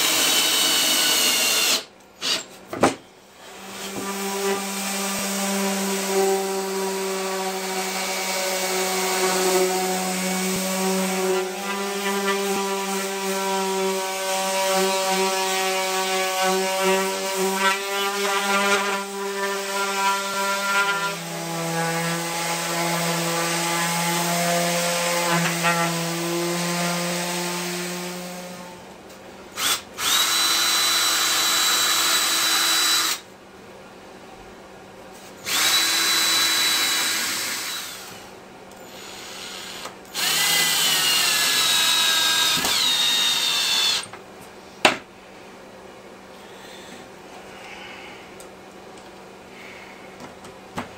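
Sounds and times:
cordless drill whine: 0:00.0 - 0:02.5, 0:29.6 - 0:33.2, 0:35.4 - 0:38.2, 0:38.8 - 0:44.1
orbital sander motor hum: 0:42.7 - 0:44.0.

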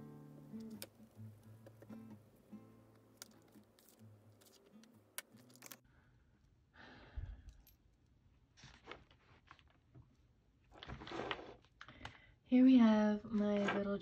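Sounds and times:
paper rustling: 0:03.1 - 0:05.8.

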